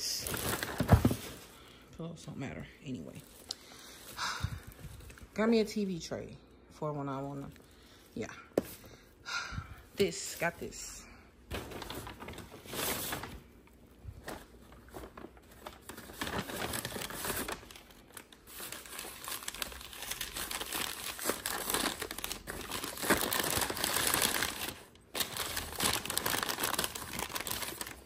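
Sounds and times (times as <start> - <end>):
tissue paper crinkling: 0.0 - 1.8, 11.5 - 28.0.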